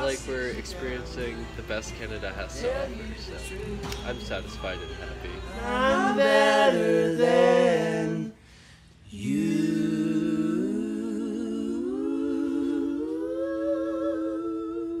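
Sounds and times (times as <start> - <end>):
person humming a long note: 11.8 - 15.0.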